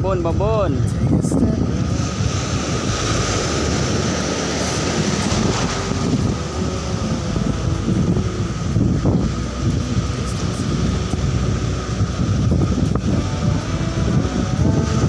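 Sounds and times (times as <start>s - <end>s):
faint steady whine: 0.0s - 15.0s
sea surf breaking: 0.0s - 15.0s
wind rumbling on microphone: 0.0s - 15.0s.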